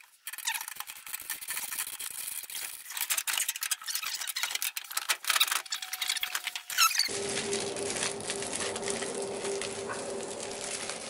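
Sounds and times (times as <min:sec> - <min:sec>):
short squeaks: 0:03.4 - 0:07.1.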